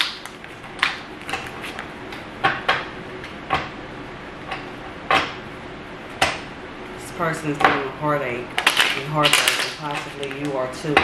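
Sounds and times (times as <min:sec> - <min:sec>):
playing cards shuffled by hand: 0:01.2 - 0:01.9.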